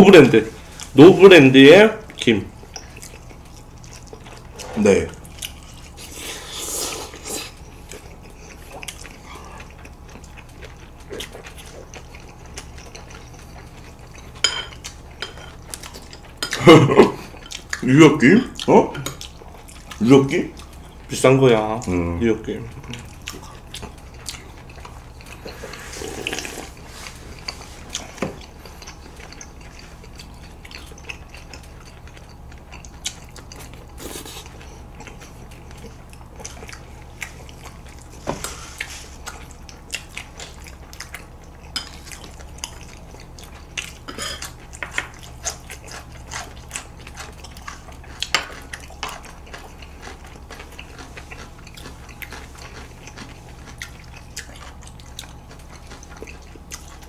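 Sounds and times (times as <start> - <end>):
slurping noodles and soup: 6.0 - 7.6, 25.4 - 28.0.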